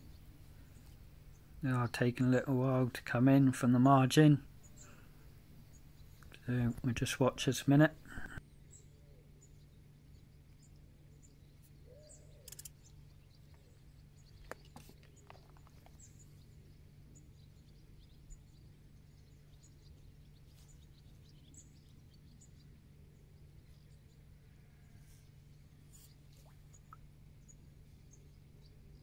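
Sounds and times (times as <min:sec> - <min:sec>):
faint bird chirps: 0:08.0 - 0:29.0
small clicks: 0:12.4 - 0:12.9.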